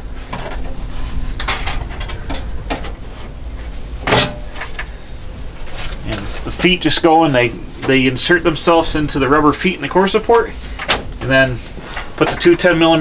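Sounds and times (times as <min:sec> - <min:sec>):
knocks and scrapes of radiator: 0:00.0 - 0:06.4
steady low rumble: 0:00.0 - 0:13.0.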